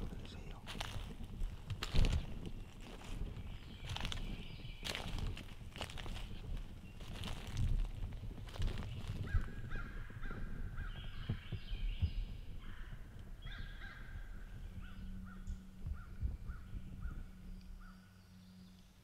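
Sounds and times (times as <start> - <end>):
footsteps in dry leaves: 0.0 - 9.8.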